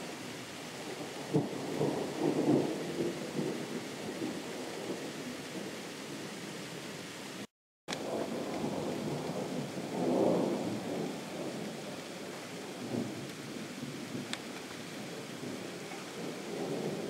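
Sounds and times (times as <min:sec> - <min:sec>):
steady rain: 0:00.0 - 0:17.0
distant thunder rumbling: 0:00.9 - 0:06.2, 0:08.0 - 0:14.4, 0:15.4 - 0:17.0.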